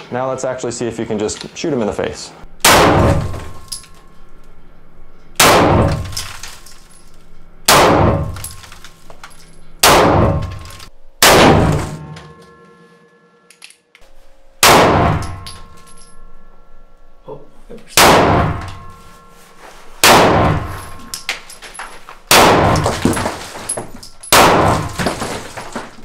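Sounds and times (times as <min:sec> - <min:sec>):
handgun shots echoing: 0:14.6 - 0:15.8.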